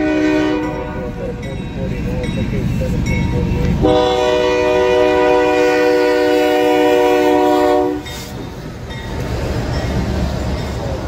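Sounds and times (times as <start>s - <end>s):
locomotive air horn chord: 0.0s - 1.2s, 3.6s - 8.3s
train rumble and rail noise: 0.0s - 11.0s.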